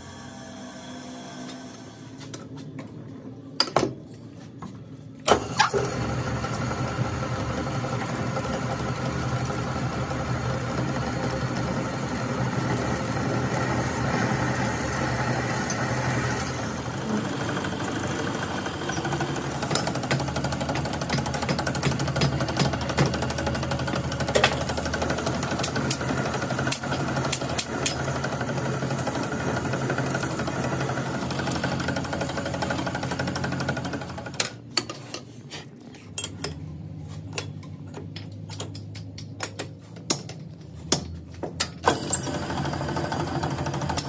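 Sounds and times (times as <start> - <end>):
metal lathe humming: 5.9 - 34.3.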